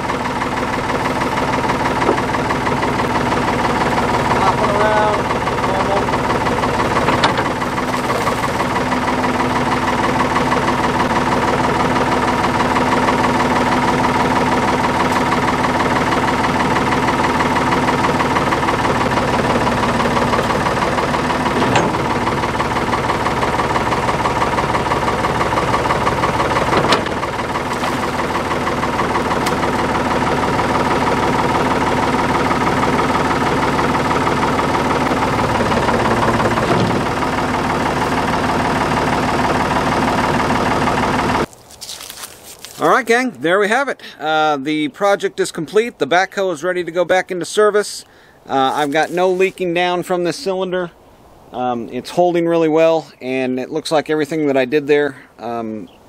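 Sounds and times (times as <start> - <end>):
backhoe engine idling: 0.0 - 41.6, 42.7 - 50.5
sharp clunks: 6.9 - 8.8, 21.3 - 22.2, 26.4 - 28.6, 29.3 - 29.7.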